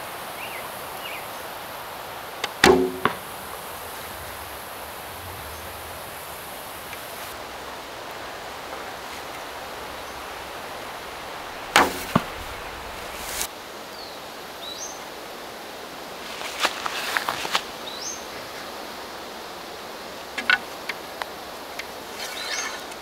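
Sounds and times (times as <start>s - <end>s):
crack: 11.7s - 13.5s.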